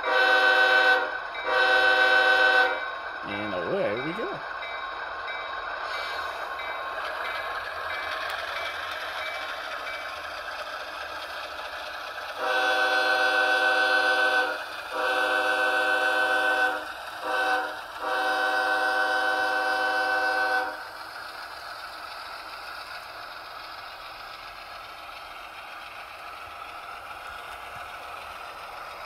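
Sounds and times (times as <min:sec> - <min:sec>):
multi-chime train horn: 0:00.0 - 0:04.3, 0:12.4 - 0:20.8
model locomotive diesel engine sound: 0:00.0 - 0:29.0
locomotive bell ringing: 0:02.8 - 0:05.6.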